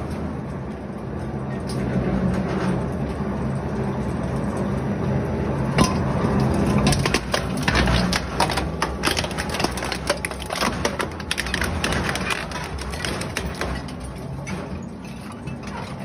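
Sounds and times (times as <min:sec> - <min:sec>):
industrial shredder humming: 0:03.2 - 0:16.0
blades crunching metal cylinder: 0:05.7 - 0:16.0.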